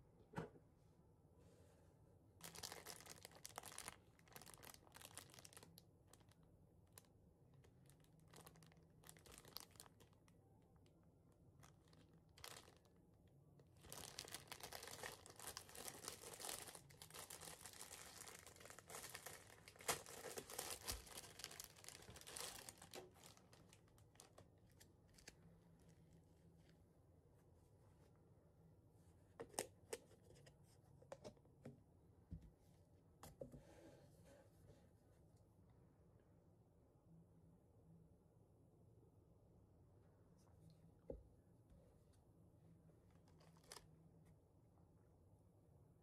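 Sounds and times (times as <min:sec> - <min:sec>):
plastic wrapper crinkling: 0:02.4 - 0:10.4, 0:11.6 - 0:13.0, 0:13.7 - 0:26.1, 0:43.2 - 0:43.8.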